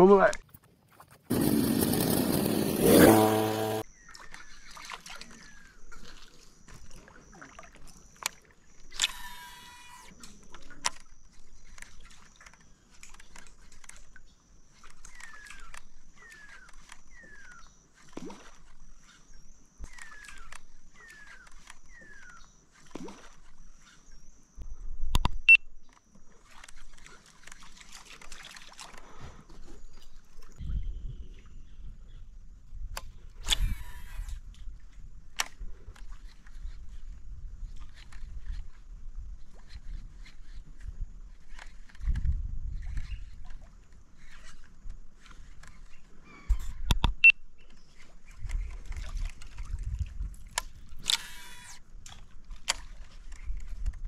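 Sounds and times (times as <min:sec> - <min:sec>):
water splashing against kayak: 0:04.0 - 0:09.4, 0:26.3 - 0:30.6, 0:47.8 - 0:54.0.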